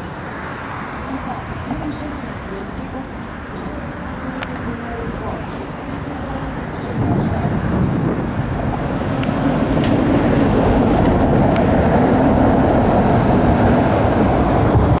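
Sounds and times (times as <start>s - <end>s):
heavy vehicles crossing a bridge: 0.0s - 15.0s.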